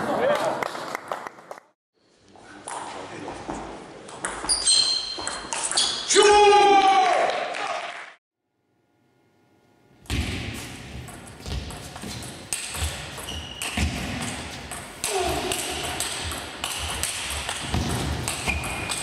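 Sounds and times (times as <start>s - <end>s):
shoe squeaks on floor: 4.4s - 6.1s, 13.2s - 13.9s, 18.4s - 19.0s.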